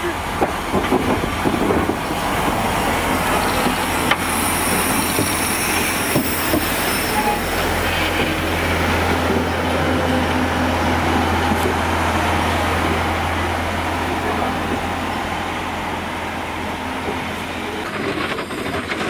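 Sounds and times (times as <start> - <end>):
steam train rolling past: 0.0 - 19.0
faint flange squeal: 6.8 - 7.5.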